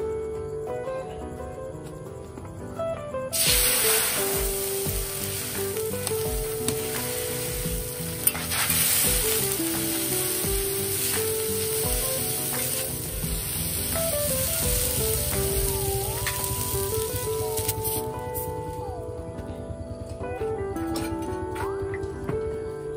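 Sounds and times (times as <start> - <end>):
background music with melody: 0.0 - 22.9
bread sizzling on griddle: 3.4 - 18.2
spatula tapping griddle: 4.4 - 18.0.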